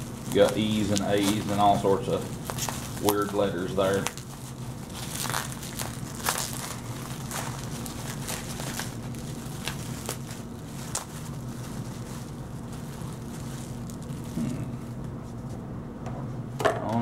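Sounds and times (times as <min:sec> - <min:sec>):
plastic bag crinkling: 0:00.0 - 0:14.9
steady low hum: 0:00.0 - 0:17.0.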